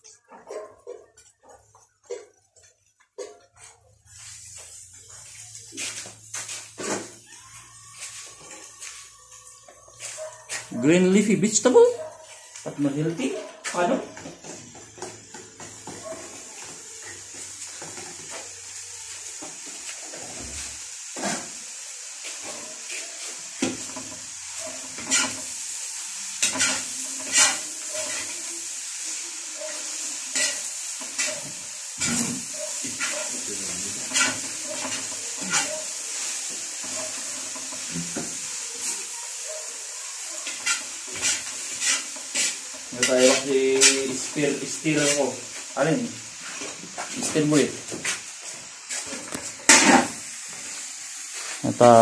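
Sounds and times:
rice sizzling in a wok: 0.0 - 52.0
metal ladle scraping a wok: 23.8 - 28.6, 29.9 - 38.1, 40.4 - 45.2.

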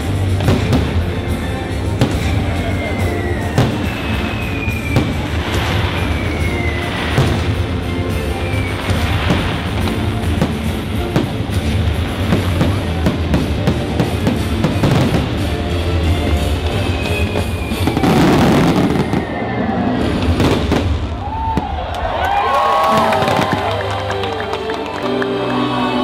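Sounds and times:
music with drums: 0.0 - 19.2
fireworks bursting and crackling: 0.0 - 25.6.

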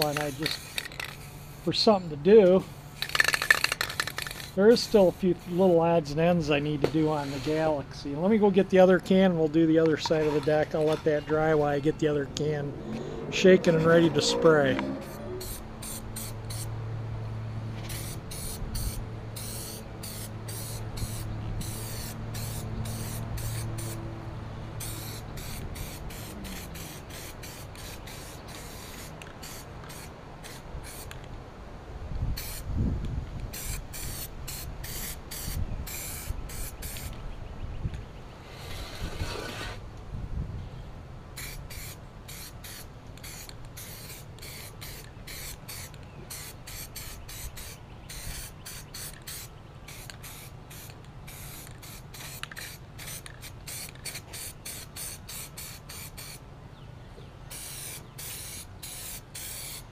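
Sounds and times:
spray paint can hissing: 0.0 - 1.9, 2.6 - 5.8, 15.0 - 16.7, 17.8 - 24.0, 24.8 - 31.2, 32.4 - 32.7, 33.5 - 37.2, 41.4 - 56.4, 57.5 - 59.9.

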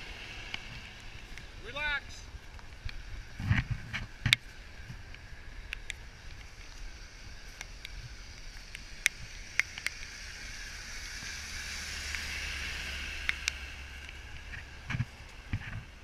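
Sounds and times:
low traffic rumble: 0.0 - 16.0
tyres hissing on wet road: 0.0 - 16.0
sharp clicks: 7.6 - 10.5, 13.2 - 14.6.

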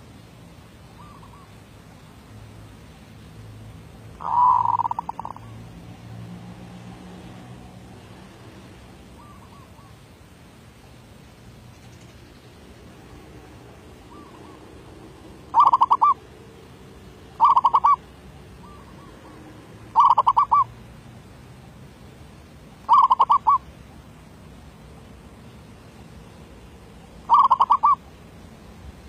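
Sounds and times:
dove cooing: 4.2 - 5.6, 13.9 - 16.2, 17.3 - 20.7, 22.9 - 23.7, 27.3 - 28.0.

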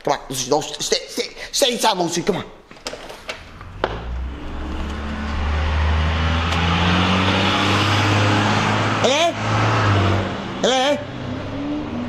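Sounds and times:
vehicle engine running: 3.4 - 7.8.

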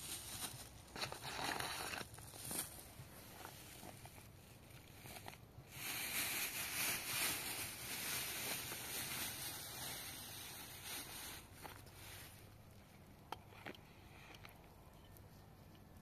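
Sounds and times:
plastic bag crinkling: 0.0 - 12.4.

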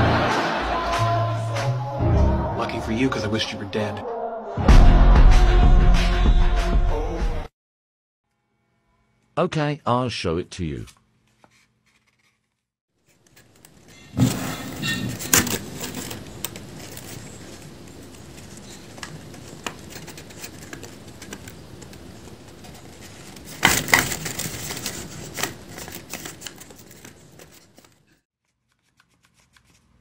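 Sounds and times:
paper rustling and crinkling: 10.9 - 30.0.

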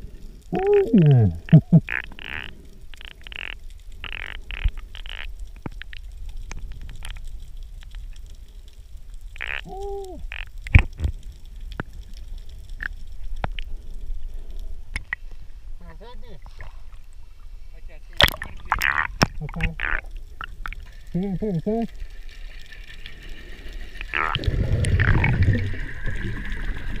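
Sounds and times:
clicks and crackles: 0.1 - 15.4, 18.2 - 27.0
underwater water rumble: 21.8 - 27.0
bubbly hiss: 23.0 - 27.0.

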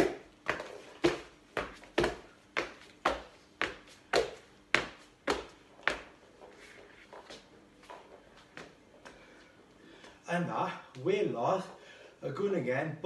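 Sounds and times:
hands and trainers landing on wooden floor: 0.0 - 6.2.

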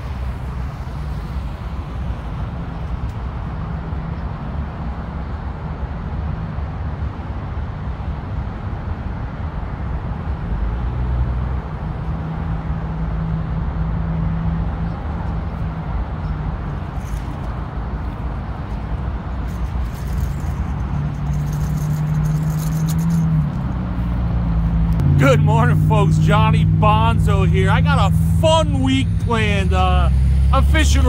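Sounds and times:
highway traffic rumble: 0.0 - 31.0
heavy vehicle passing: 10.9 - 31.0.

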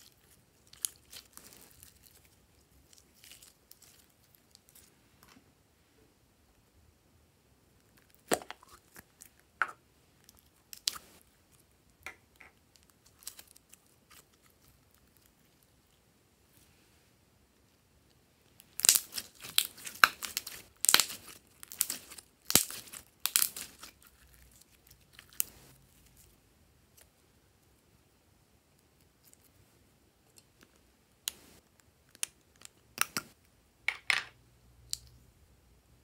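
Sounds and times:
slime crackling and popping: 0.0 - 4.8, 18.6 - 25.5.

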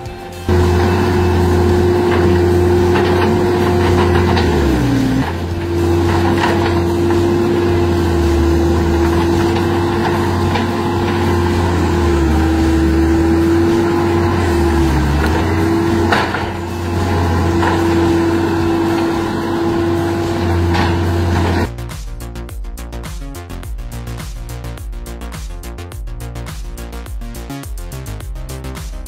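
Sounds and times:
diesel loader engine whining: 0.0 - 21.7.

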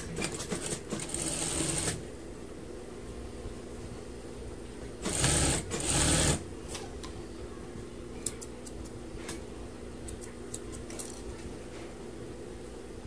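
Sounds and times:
sewing machine stitching: 0.2 - 2.0, 5.0 - 6.4
steady low hum: 1.2 - 13.0.

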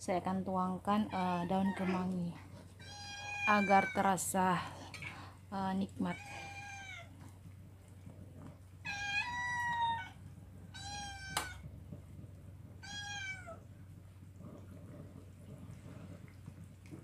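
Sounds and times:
cat meowing: 2.8 - 4.0, 6.1 - 7.1, 8.8 - 11.6, 12.8 - 13.7.

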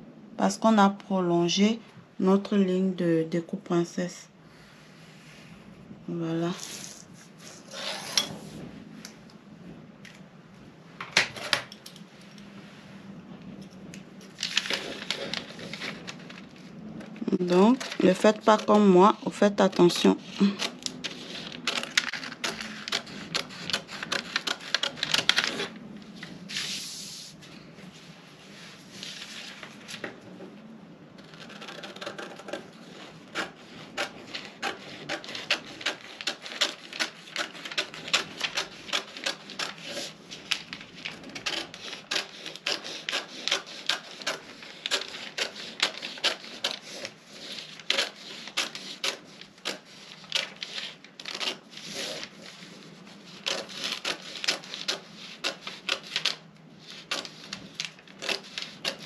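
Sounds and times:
scissors snipping paper: 14.3 - 16.5, 17.1 - 25.7, 31.2 - 59.0
paper rustling: 14.3 - 27.6, 28.4 - 30.2, 31.2 - 59.0.

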